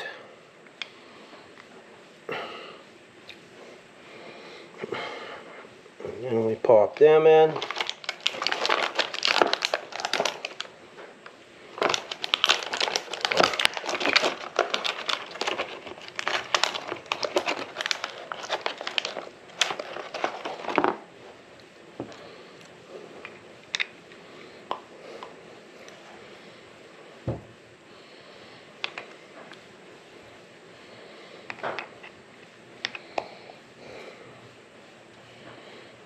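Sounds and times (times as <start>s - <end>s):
packaging crinkling: 6.9s - 10.8s, 11.7s - 21.1s.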